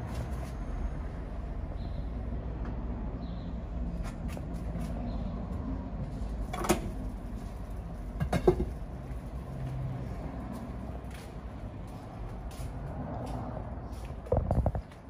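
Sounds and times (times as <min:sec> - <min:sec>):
objects knocking: 0:08.2 - 0:08.8, 0:14.3 - 0:14.9.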